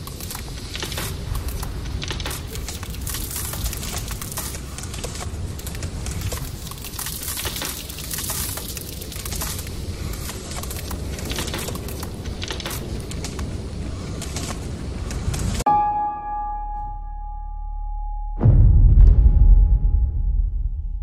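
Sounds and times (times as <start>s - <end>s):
dense crackling and crunching: 0.0s - 15.6s
low rumble: 18.4s - 21.0s.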